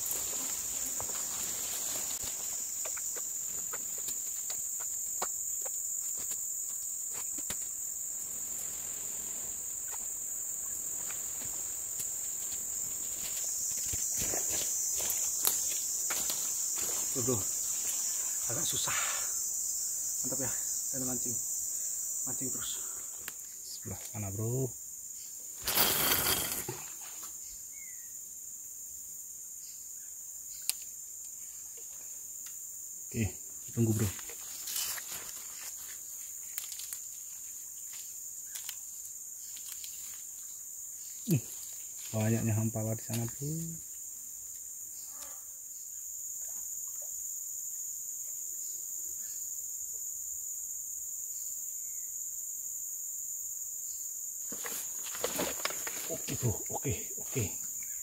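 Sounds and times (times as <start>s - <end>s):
crickets trilling: 0.0s - 58.0s
insect chorus drone: 0.0s - 58.0s.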